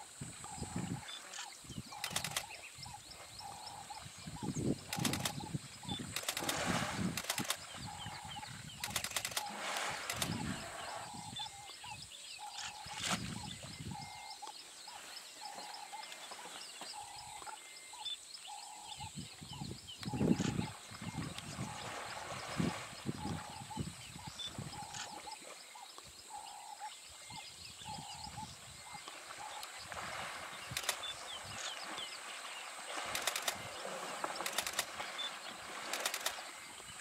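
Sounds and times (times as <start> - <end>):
water splashing and sloshing: 29.0 - 37.0.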